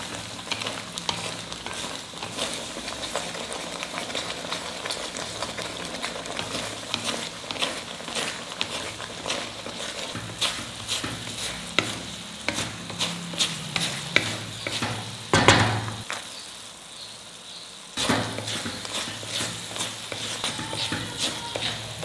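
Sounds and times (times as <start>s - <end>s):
food sizzling in pan: 0.0s - 22.0s
cashews clattering into pan: 4.0s - 16.3s
spatula scraping metal pan: 5.8s - 16.0s, 18.0s - 22.0s.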